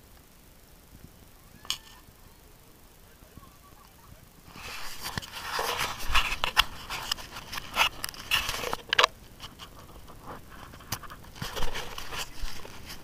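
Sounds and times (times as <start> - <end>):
camera case rubbing on clothing: 4.5 - 8.8, 9.4 - 13.0.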